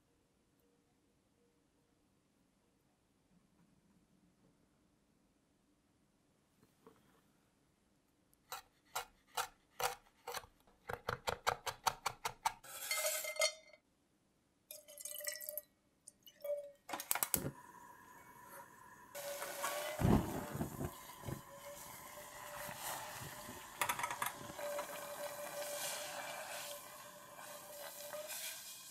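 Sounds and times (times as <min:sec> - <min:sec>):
peppercorns sizzling in a saucepan: 0:12.6 - 0:13.6, 0:17.1 - 0:28.9
liquid pouring into a steel pot: 0:14.7 - 0:28.9.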